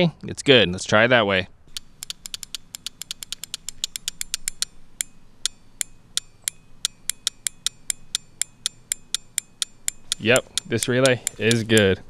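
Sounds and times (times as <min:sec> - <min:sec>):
relay clicking: 0:01.7 - 0:12.0.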